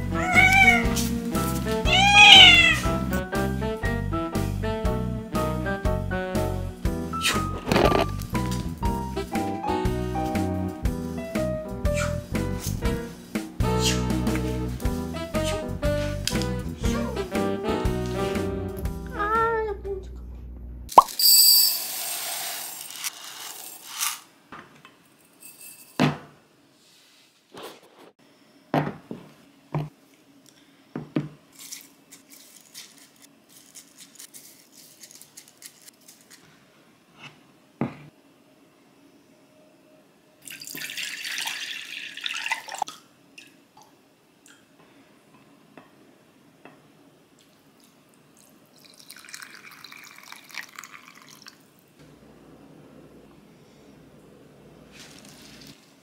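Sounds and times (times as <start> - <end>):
water running into glass cup: 40.4 - 43.0, 48.8 - 51.6
water poured over rice: 48.8 - 51.6.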